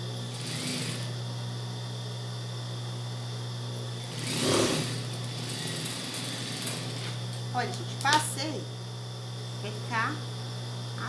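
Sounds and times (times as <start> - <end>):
sewing machine motor humming: 0.0 - 1.2, 3.9 - 8.2.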